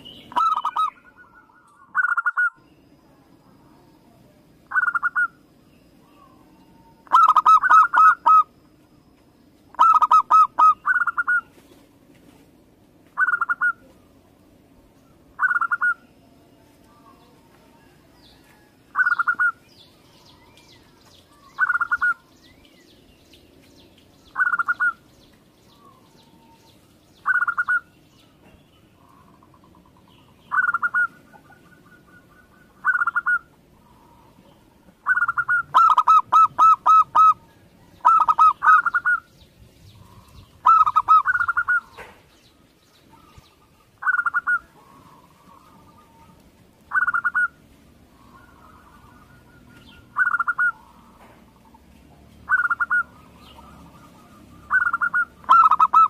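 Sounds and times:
doves cooing: 0:00.0 - 0:02.6, 0:04.6 - 0:08.6, 0:09.7 - 0:11.6, 0:13.2 - 0:14.3, 0:24.3 - 0:25.1, 0:28.9 - 0:39.3, 0:39.9 - 0:42.3, 0:43.0 - 0:56.0
small birds chirping: 0:00.0 - 0:56.0.

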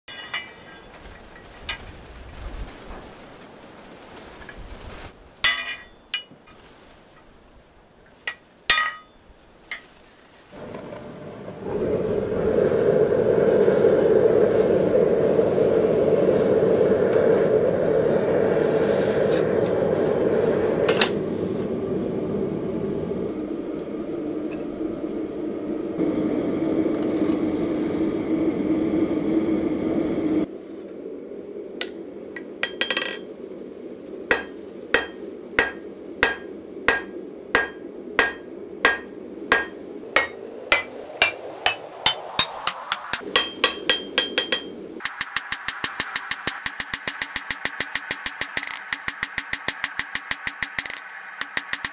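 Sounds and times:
hammer striking steel on anvil: 0:05.4 - 0:06.3, 0:08.3 - 0:09.8, 0:34.3 - 0:51.9
gas forge burner rushing flame: 0:10.5 - 0:32.8.

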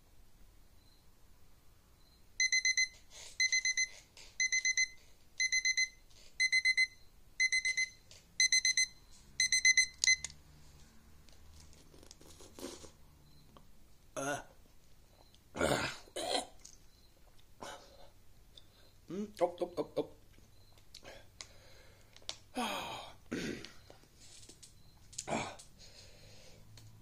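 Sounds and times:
digital timer alarm beeping: 0:02.0 - 0:10.3.

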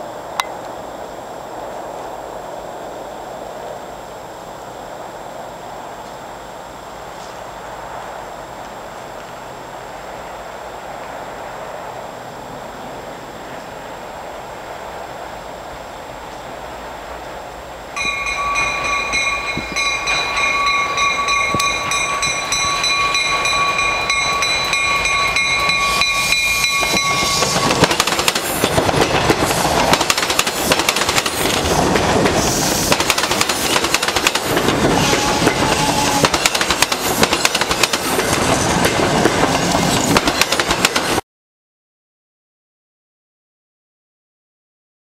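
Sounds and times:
train passing with rail noise: 0:00.0 - 0:41.2
train horn blast: 0:34.9 - 0:36.4.

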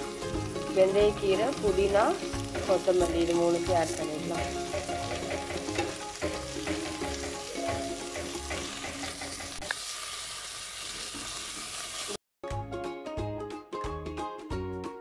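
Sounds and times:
leaves sizzling in hot oil: 0:00.0 - 0:12.2
background music with a beat: 0:04.3 - 0:09.6, 0:12.4 - 0:15.0.

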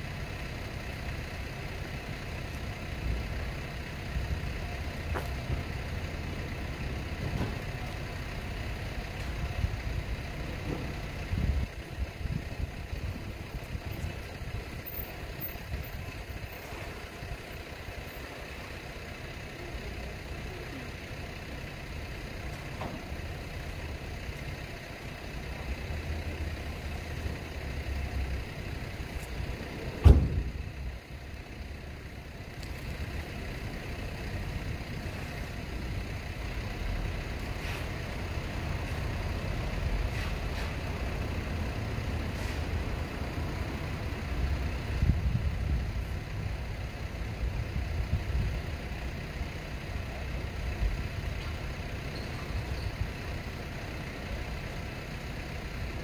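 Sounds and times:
low outdoor rumble: 0:00.0 - 0:56.0
sharp thump: 0:30.0 - 0:30.6.

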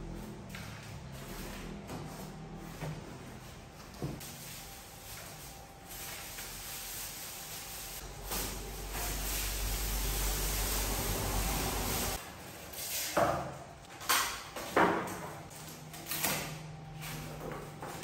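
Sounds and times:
plastic wrap rustling and crinkling: 0:00.4 - 0:10.3.

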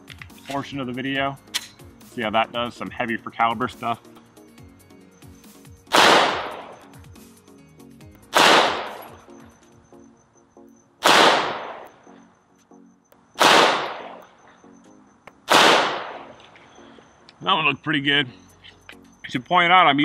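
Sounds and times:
pistol shots: 0:05.9 - 0:06.9, 0:08.3 - 0:09.2, 0:11.0 - 0:11.9, 0:13.4 - 0:14.3, 0:15.4 - 0:16.4.

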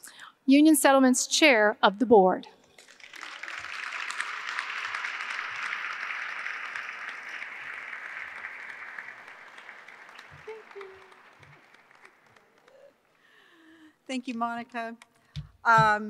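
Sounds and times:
audience applauding: 0:02.8 - 0:13.4.

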